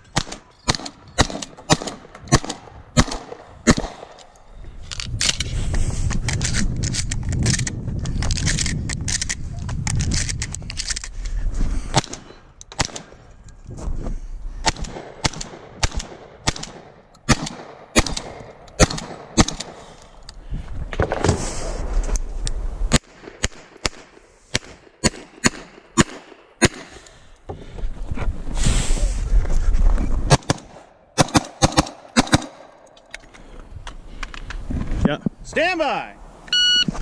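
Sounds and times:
gunshots: 0:00.1 - 0:04.2, 0:11.9 - 0:13.2, 0:14.6 - 0:19.9, 0:22.9 - 0:27.0, 0:30.3 - 0:32.8.

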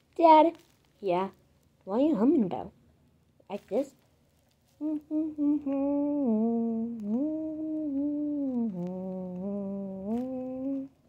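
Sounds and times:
child humming a tune: 0:04.8 - 0:11.0.

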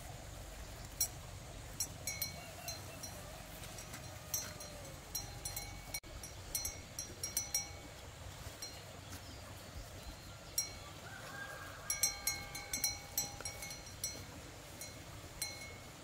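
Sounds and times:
small metal bell clinking: 0:01.0 - 0:08.0, 0:11.9 - 0:16.0.

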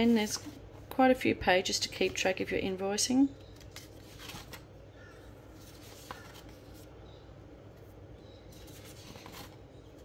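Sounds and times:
paper pages turning: 0:03.6 - 0:04.7, 0:05.5 - 0:06.9, 0:07.8 - 0:10.0.

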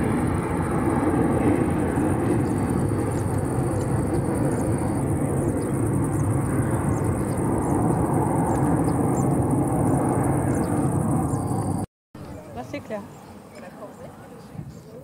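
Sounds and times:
jet engine deep rumble: 0:00.0 - 0:11.9.

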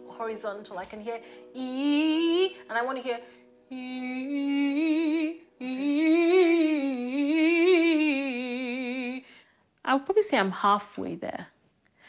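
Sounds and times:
woman singing a held vowel: 0:00.0 - 0:09.3.

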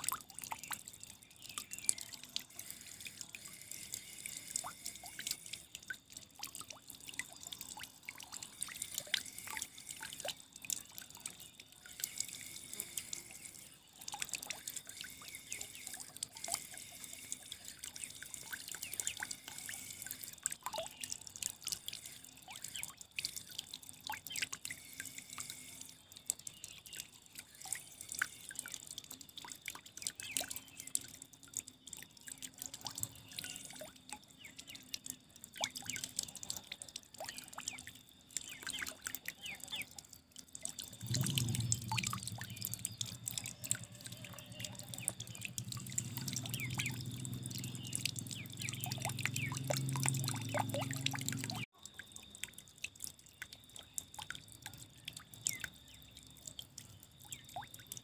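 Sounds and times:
water trickling and dripping: 0:00.0 - 0:58.0.

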